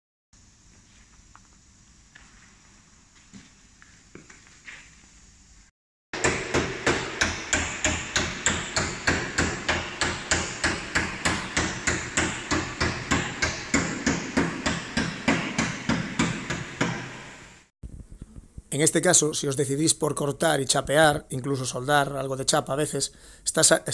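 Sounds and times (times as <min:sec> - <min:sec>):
hammer ringing on sheet metal: 0:06.2 - 0:17.4.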